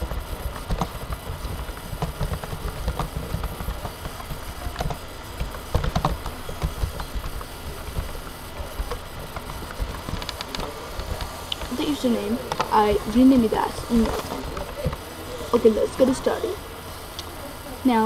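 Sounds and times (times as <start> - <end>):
low background rumble: 0.0 - 18.0.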